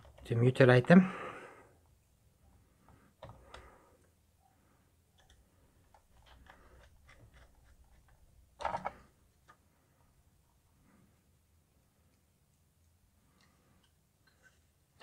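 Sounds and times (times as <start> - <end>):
screwdriver clicks and metal scrapes: 5.2 - 9.0.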